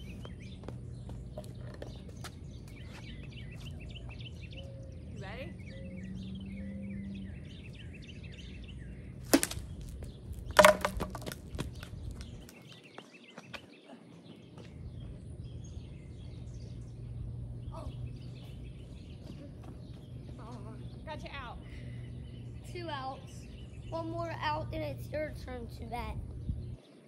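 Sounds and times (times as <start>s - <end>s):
birds chirping: 0.0s - 27.0s
plastic bat clattering on asphalt: 9.2s - 12.6s
plastic bat hitting ball: 9.3s - 10.0s, 10.6s - 11.5s.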